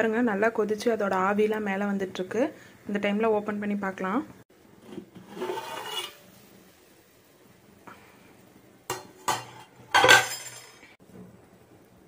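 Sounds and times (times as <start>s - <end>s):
metal pot lid clinking: 8.9s - 10.8s
pot lid clattering clank: 8.9s - 10.8s.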